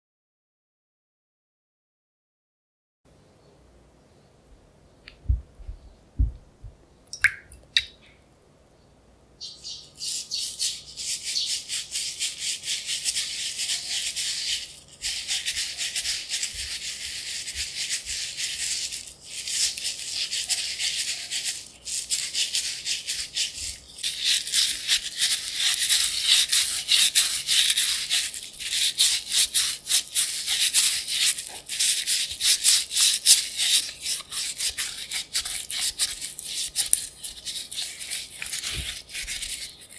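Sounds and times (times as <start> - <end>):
peel scrubbed with salt: 9.9 - 39.9.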